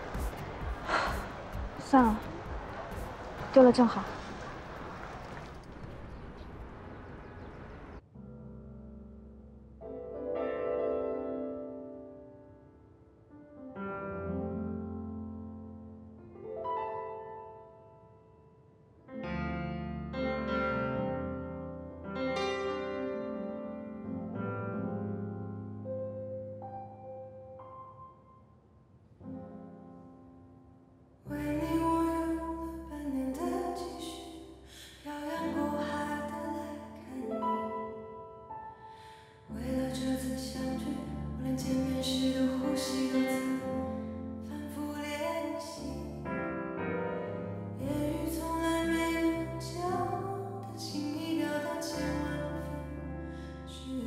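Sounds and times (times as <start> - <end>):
soft piano chord: 8.1 - 54.0
woman singing a ballad: 31.3 - 37.8, 39.0 - 46.4, 47.8 - 54.0.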